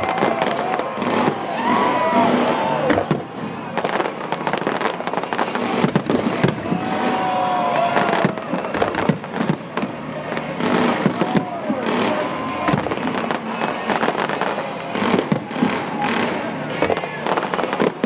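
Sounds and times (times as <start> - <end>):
fireworks bangs and crackles: 0.0 - 18.0
whistling firework glides: 0.0 - 18.0.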